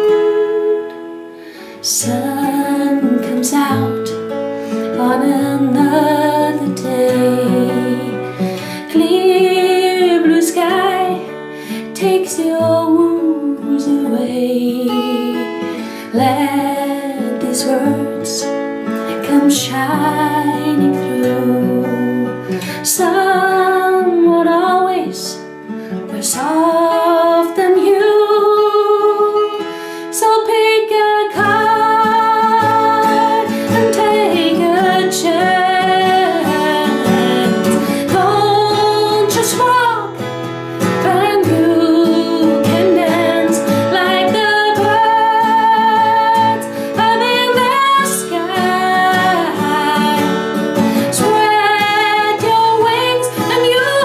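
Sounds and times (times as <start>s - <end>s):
woman singing with vibrato: 0.0s - 4.3s, 4.9s - 11.3s, 11.9s - 25.4s, 26.1s - 54.0s
strummed acoustic guitar: 0.0s - 54.0s.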